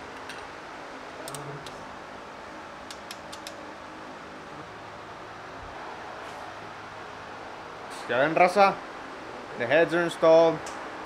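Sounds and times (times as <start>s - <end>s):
metallic clicks of tools: 2.9s - 3.6s.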